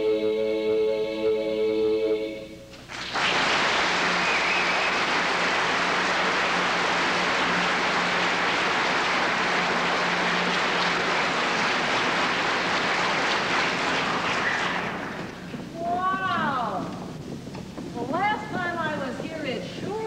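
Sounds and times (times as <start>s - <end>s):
vocal group singing chord: 0.0s - 2.6s
audience applause: 2.9s - 15.7s.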